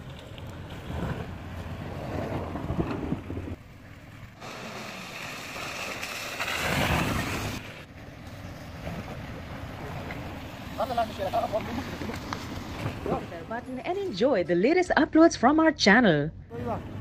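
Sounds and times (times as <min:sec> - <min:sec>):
wind rushing on microphone: 0:00.0 - 0:03.6.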